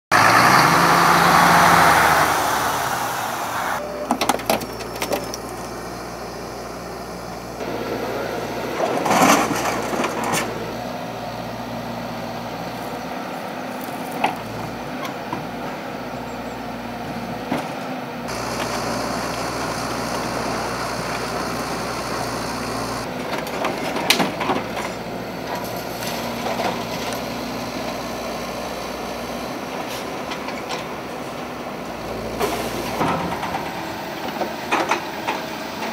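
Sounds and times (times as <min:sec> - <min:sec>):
excavator engine running: 0:00.1 - 0:35.9.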